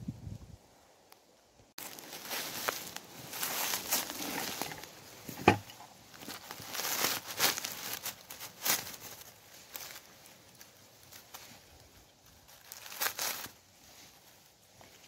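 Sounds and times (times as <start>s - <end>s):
dry grass and leaves rustling: 0.0s - 15.0s.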